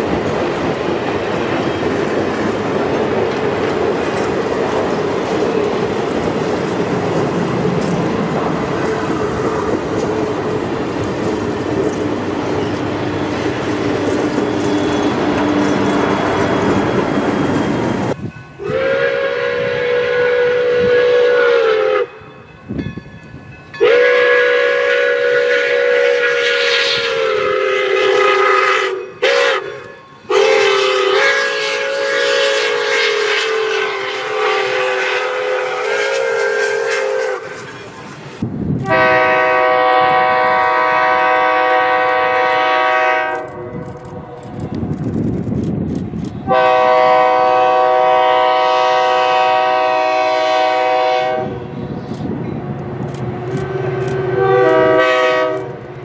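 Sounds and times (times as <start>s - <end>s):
train running: 0.0s - 56.0s
train whistle blasts: 18.6s - 22.4s, 23.8s - 38.0s, 38.8s - 43.8s, 46.4s - 51.9s, 53.6s - 55.8s.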